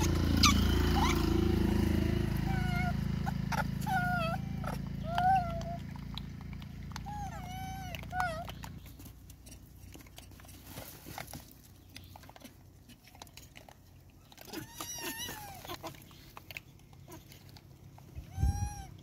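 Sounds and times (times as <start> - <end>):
monkeys squealing and crying: 0.0 - 6.1, 6.9 - 9.0, 14.3 - 16.4, 17.0 - 19.0.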